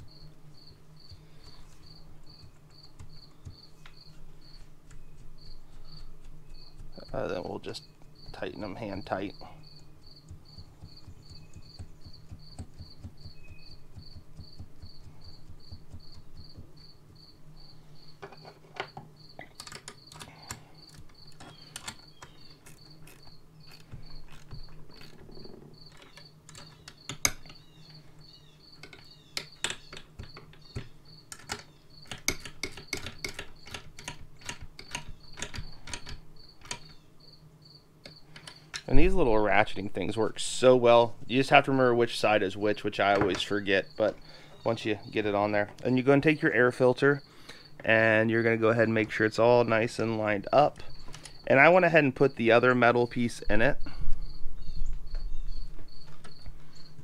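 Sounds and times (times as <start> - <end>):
cricket chirping: 0.0 - 4.6, 5.4 - 39.2, 50.5 - 57.0.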